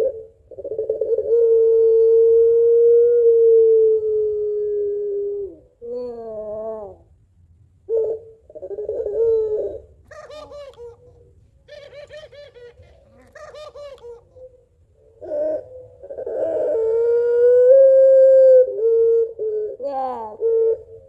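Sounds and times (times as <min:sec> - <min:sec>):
dove long cooing: 0:00.0 - 0:07.2, 0:07.9 - 0:21.0
dove laughing notes: 0:08.9 - 0:14.6.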